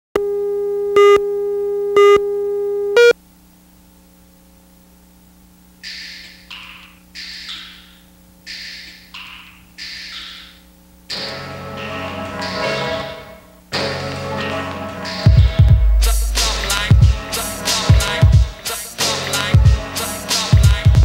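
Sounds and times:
short beeps: 0:01.0 - 0:03.2
music: 0:05.8 - 0:21.0
low hum: 0:15.7 - 0:17.6
steady test tone: 0:15.7 - 0:17.6.

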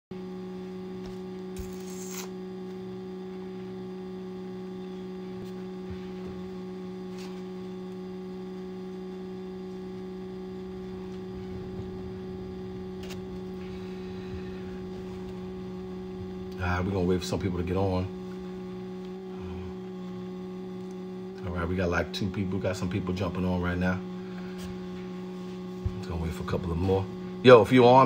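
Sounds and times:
electrical hum: 0:00.1 - 0:28.0.

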